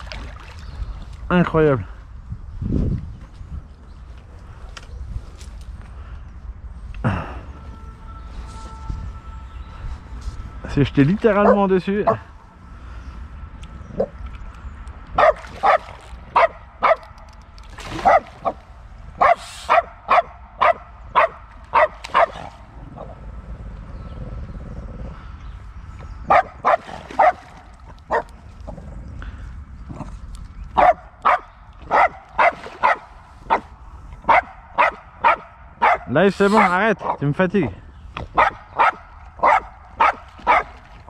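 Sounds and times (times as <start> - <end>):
dog barking in sharp yaps: 15.2 - 17.1, 19.2 - 22.5, 34.3 - 36.8, 38.4 - 40.7.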